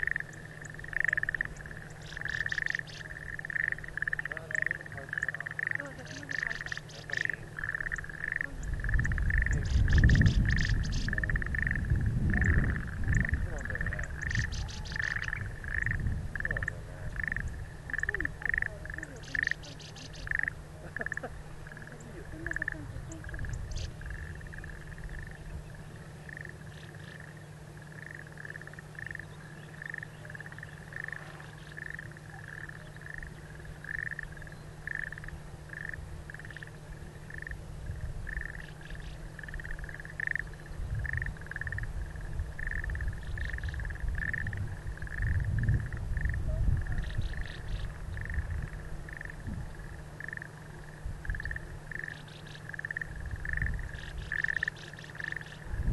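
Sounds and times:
animal calling: 0.0 - 37.6
low rumble: 5.9 - 52.0, 55.6 - 55.9.

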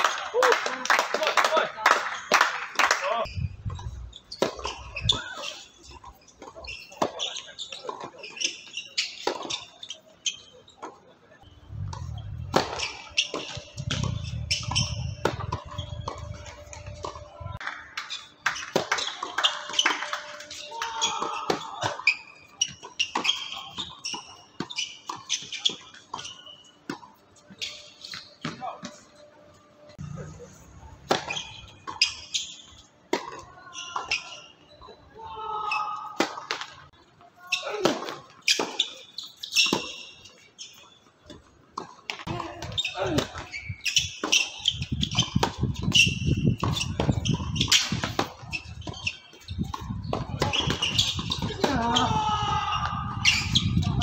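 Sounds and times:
short high squeaks: 3.3 - 17.4, 19.0 - 26.8, 38.4 - 41.0, 42.6 - 51.5
racket hitting tennis ball: 4.4 - 8.1, 11.9 - 17.2, 31.0 - 32.2, 41.8 - 51.9
ball bouncing: 11.7 - 17.3, 31.0 - 32.2.

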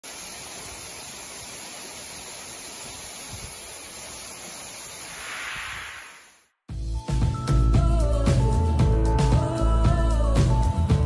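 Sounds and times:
waterfall rushing hiss: 0.0 - 6.5.

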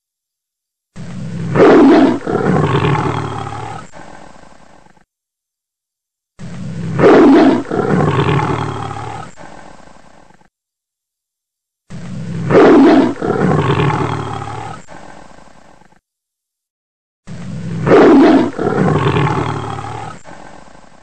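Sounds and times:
tiger roaring: 1.0 - 5.0, 6.4 - 10.5, 11.9 - 16.0, 17.3 - 21.0.

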